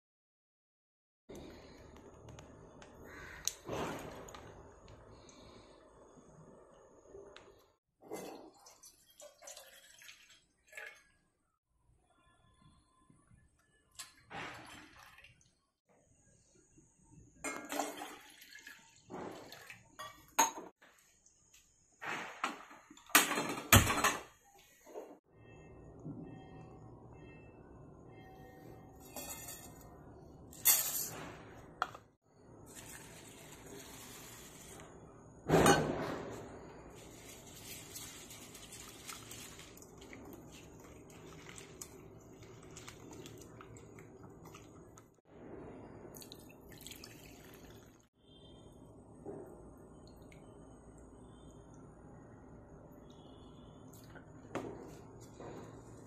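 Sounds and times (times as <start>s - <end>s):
water sloshing in pot: 8.0s - 11.4s, 14.0s - 15.7s, 17.4s - 20.4s, 37.0s - 45.2s, 46.1s - 48.2s.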